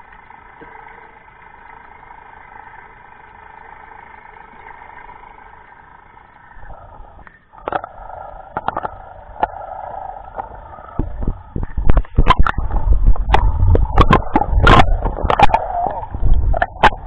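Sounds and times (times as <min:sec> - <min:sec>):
muffled underwater boat engine: 0:00.0 - 0:17.0
low rumbling: 0:04.8 - 0:17.0
clicks and knocks on camera: 0:10.4 - 0:17.0.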